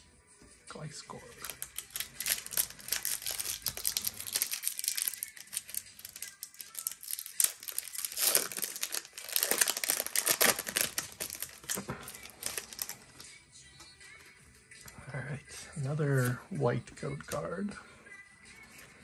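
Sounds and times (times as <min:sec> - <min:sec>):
foil wrapper tearing and crinkling: 0:01.3 - 0:13.2.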